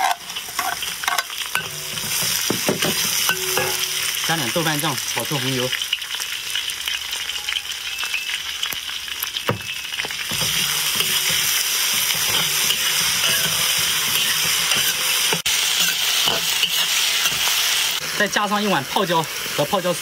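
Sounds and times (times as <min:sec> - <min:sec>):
metal spatula scraping wok: 0:00.0 - 0:04.3, 0:09.7 - 0:18.1
paste sizzling in hot oil: 0:00.0 - 0:20.0.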